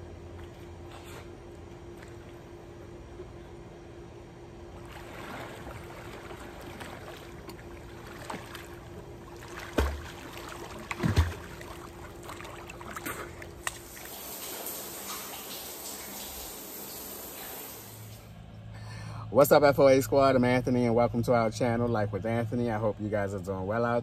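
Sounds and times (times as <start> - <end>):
pool water lapping and splashing: 0.0 - 3.7, 4.5 - 18.3
faint steady hum: 0.0 - 24.0
shower spray: 13.8 - 18.3.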